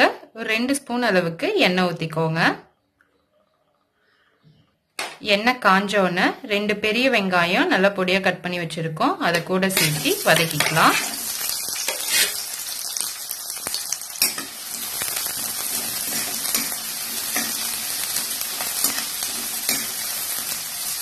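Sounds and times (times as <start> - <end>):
onions sizzling in hot oil: 9.6 - 21.0
ladle scraping a pan: 11.9 - 12.5.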